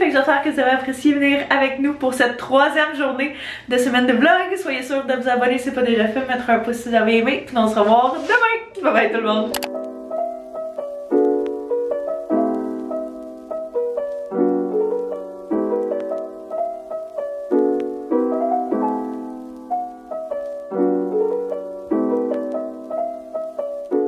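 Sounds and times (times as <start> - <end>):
gentle piano piece: 8.6 - 24.0.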